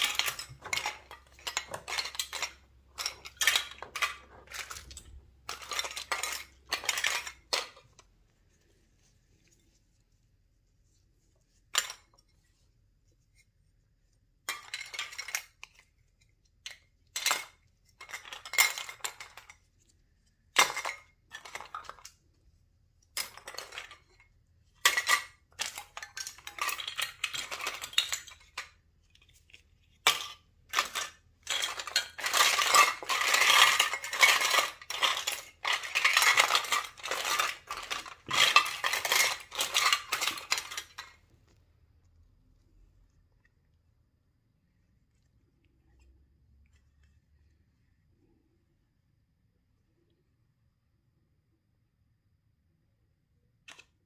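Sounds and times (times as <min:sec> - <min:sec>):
plastic toys clattering: 0:00.0 - 0:09.8, 0:11.5 - 0:12.6, 0:14.4 - 0:41.6, 0:53.7 - 0:54.0.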